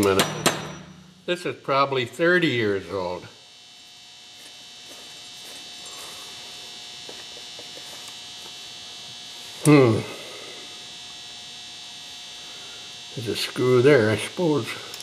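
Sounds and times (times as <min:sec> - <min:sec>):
man's short vocal sound: 0:09.6 - 0:10.3.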